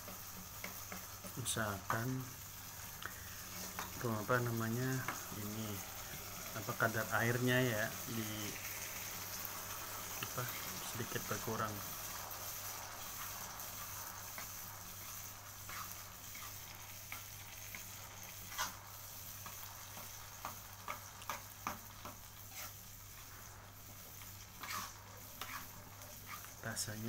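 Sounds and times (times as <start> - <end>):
spoon scraping a pan: 0.0 - 1.5, 12.1 - 26.6
chili sauce sizzling in a pan: 0.0 - 27.0.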